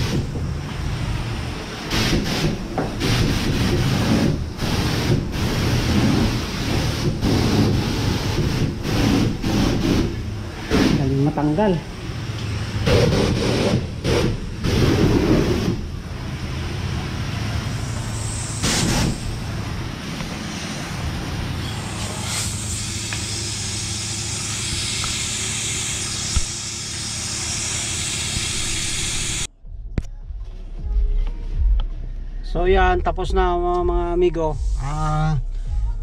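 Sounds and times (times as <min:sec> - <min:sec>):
pressure washer water jet hissing: 0:00.0 - 0:29.5
low hum: 0:26.2 - 0:36.0.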